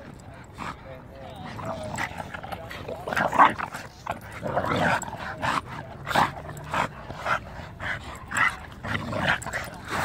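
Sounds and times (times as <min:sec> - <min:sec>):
dogs huffing: 0:00.0 - 0:10.0.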